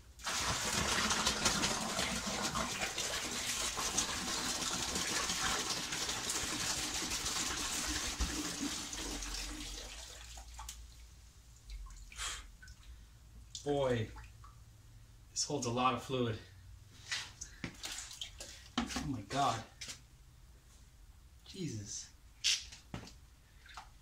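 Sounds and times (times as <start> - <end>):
fluid pouring into bucket: 0.1 - 10.7.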